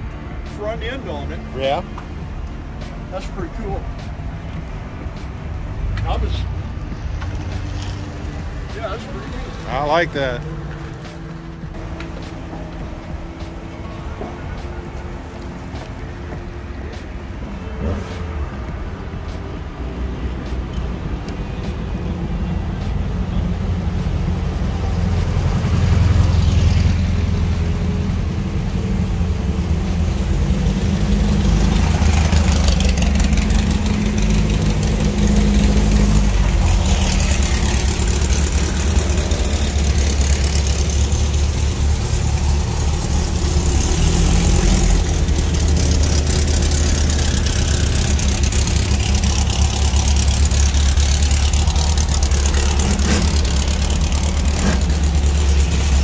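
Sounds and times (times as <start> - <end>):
cars driving past: 0.0 - 56.0
engine idling: 18.6 - 56.0.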